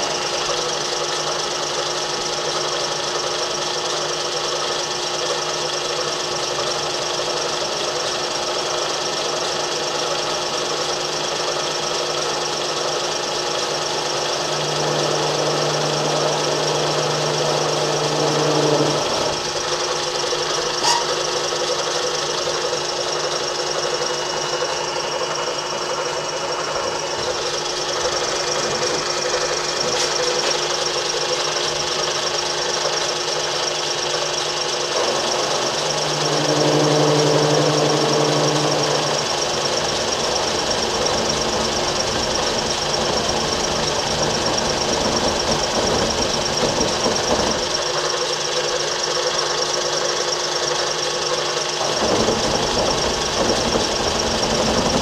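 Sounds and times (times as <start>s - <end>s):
milling machine hum: 0.0s - 55.0s.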